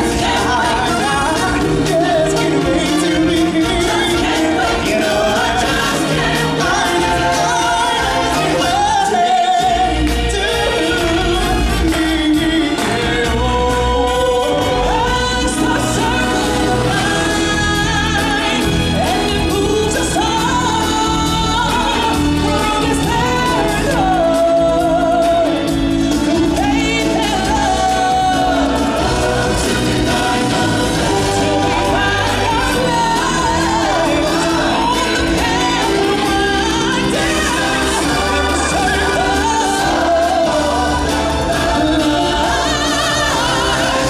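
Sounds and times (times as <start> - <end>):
choir holding long notes: 0.0 - 11.6, 27.1 - 44.0
full band playing: 0.0 - 44.0
heavy bass: 0.0 - 44.0.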